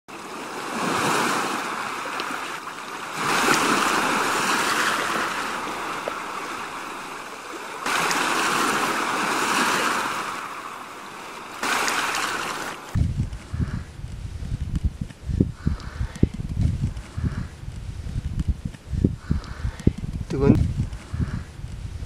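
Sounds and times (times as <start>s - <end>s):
sea waves surging: 0.1s - 13.0s.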